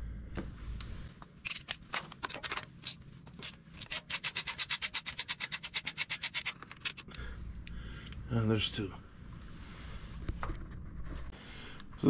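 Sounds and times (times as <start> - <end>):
ratchet wrench clicking: 3.8 - 7.2.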